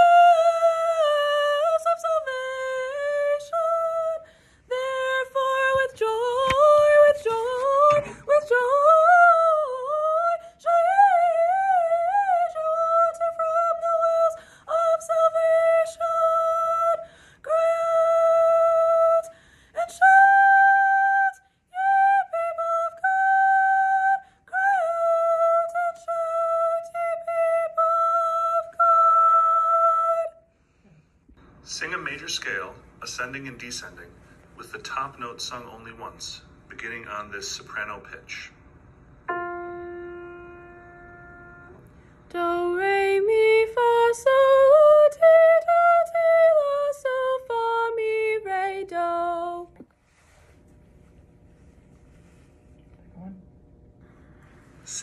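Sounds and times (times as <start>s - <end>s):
soprano singing a cappella: 0.0s - 30.4s, 39.3s - 49.8s
singer breathing: 4.2s - 4.7s, 14.4s - 14.7s, 17.0s - 17.4s, 19.3s - 19.8s, 54.0s - 55.0s.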